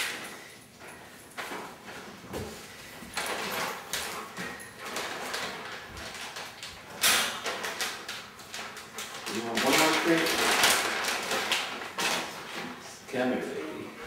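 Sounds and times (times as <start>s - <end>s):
plastic bag crinkling: 3.2s - 12.8s.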